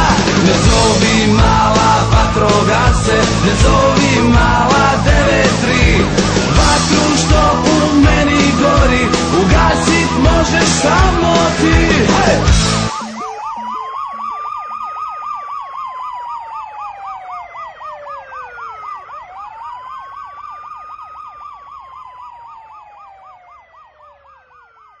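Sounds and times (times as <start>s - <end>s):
pop song music: 0.0s - 15.2s
siren warble and wail: 0.0s - 25.0s.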